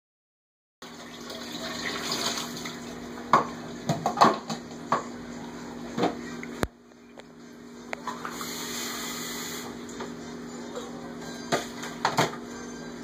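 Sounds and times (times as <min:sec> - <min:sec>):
faucet water splashing into sink: 0:00.8 - 0:02.8
dishes clattering in sink: 0:11.5 - 0:12.4.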